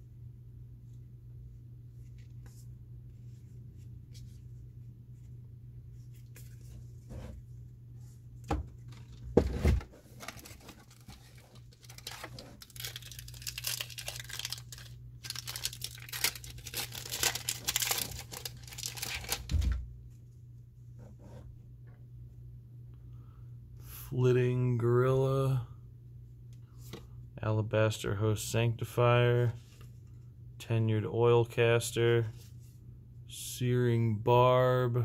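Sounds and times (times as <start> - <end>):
foil wrapper tearing and crinkling: 10.1 - 19.6.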